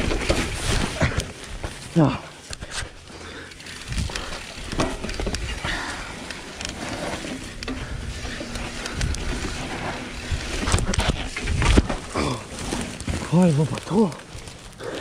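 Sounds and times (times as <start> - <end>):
mountain bike clattering and rattling: 0.0 - 15.0.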